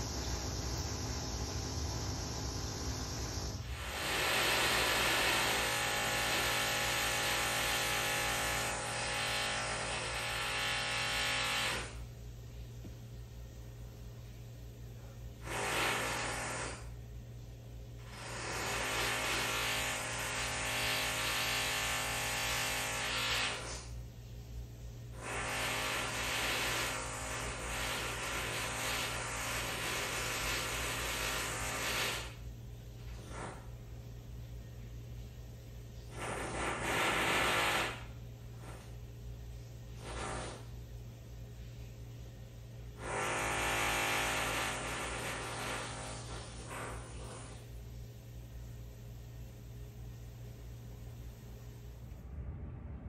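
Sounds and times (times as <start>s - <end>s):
whine of steady tones: 0.0s - 3.9s
power tool through walls: 0.0s - 12.1s, 15.4s - 17.0s, 18.0s - 24.0s, 25.1s - 34.0s, 36.0s - 39.1s, 39.9s - 40.8s, 42.8s - 47.8s
power tools din: 2.8s - 12.0s, 43.0s - 47.5s.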